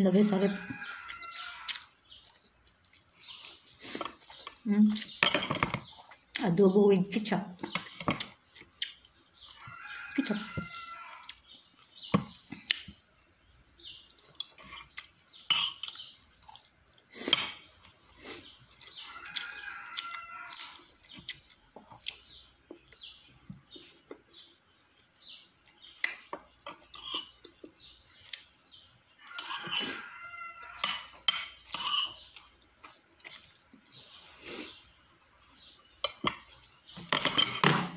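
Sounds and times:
cutlery clinking on plates: 5.1s - 5.9s, 29.4s - 30.0s, 30.8s - 32.2s, 36.0s - 37.9s.

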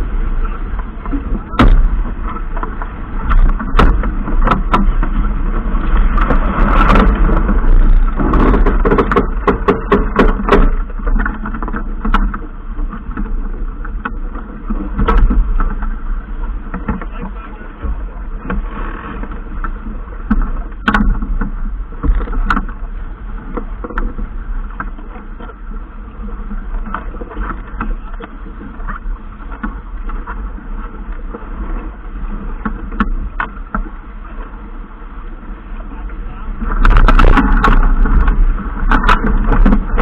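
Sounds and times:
water noise: 0.0s - 40.0s
wind: 0.0s - 40.0s
sharp clicks and knocks: 0.8s - 5.3s, 6.0s - 16.0s, 18.4s - 22.8s, 36.7s - 40.0s.

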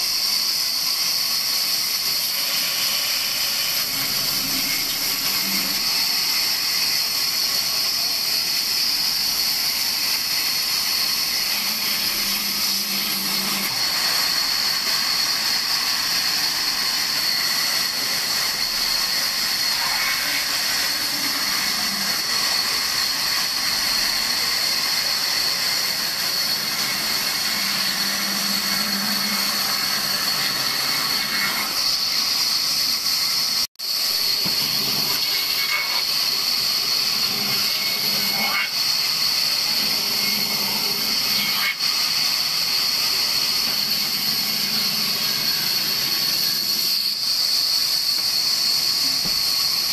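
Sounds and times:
band saw blade hissing in wood: 0.0s - 49.9s
band saw motor hum: 0.0s - 49.9s.

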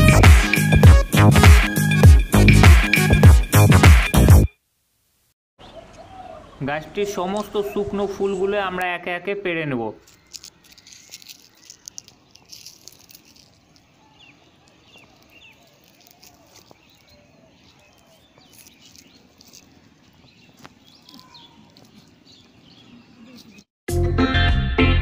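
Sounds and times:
bird chirps: 5.6s - 8.5s, 10.0s - 23.7s
dried flowers crackling: 10.0s - 23.7s.

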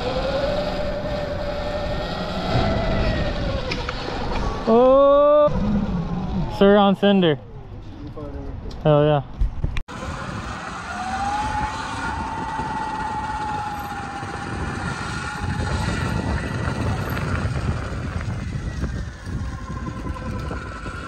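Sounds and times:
electric motor whining: 0.0s - 4.7s, 9.9s - 21.0s
wind noise rumble: 0.0s - 7.0s, 9.3s - 21.0s.

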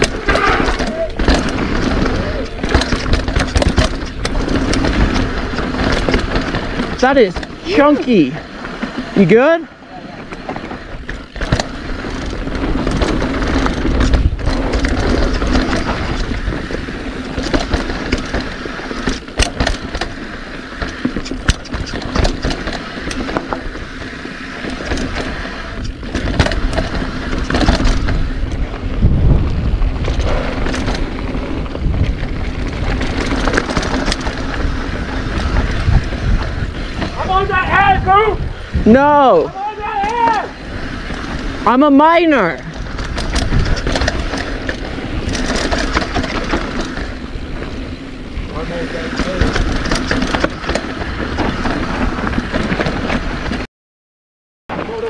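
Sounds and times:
bike clattering knocks: 0.0s - 7.9s, 10.3s - 28.4s, 42.8s - 53.3s
tyres rumbling over dirt and rock: 0.0s - 53.7s
wind on microphone: 24.8s - 39.6s, 42.4s - 48.5s.

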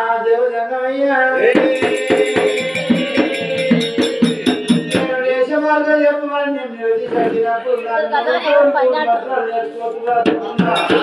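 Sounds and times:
person singing folk song: 0.0s - 11.0s
fast sharp percussion strokes: 1.4s - 5.5s, 10.2s - 11.0s.

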